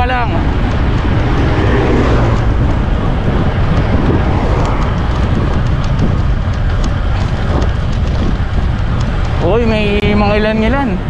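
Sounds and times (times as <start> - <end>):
road and traffic noise: 0.0 - 11.0
wind rumbling on microphone: 0.0 - 11.0
light ticks: 3.7 - 10.7.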